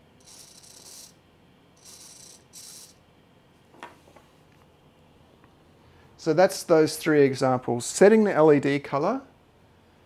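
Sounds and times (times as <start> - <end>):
servo motor whirring: 0.2 - 1.1, 1.8 - 3.0.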